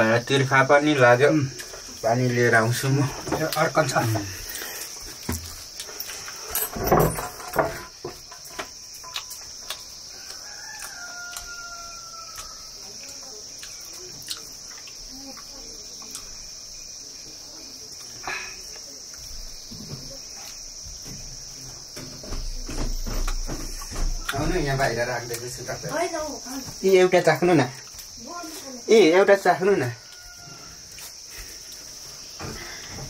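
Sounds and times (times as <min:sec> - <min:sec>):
insects buzzing: 0:00.0 - 0:33.0
knocks and thumps: 0:03.1 - 0:03.5, 0:06.6 - 0:08.8, 0:20.8 - 0:24.9
rooster crowing: 0:10.0 - 0:12.8, 0:29.6 - 0:31.1.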